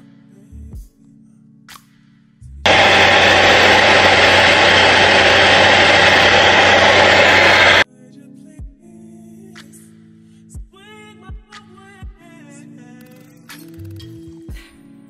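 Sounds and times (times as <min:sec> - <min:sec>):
hair dryer running: 0:02.7 - 0:07.8.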